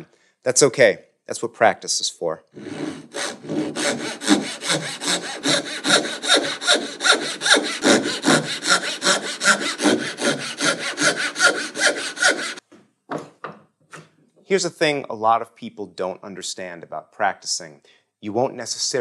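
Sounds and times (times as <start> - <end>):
handsaw cutting wood: 2.6 - 12.6.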